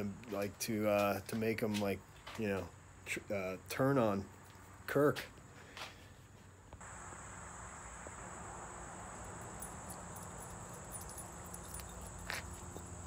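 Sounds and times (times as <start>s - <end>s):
background hiss: 0.0s - 13.0s
high-pitched insect drone: 6.8s - 13.0s.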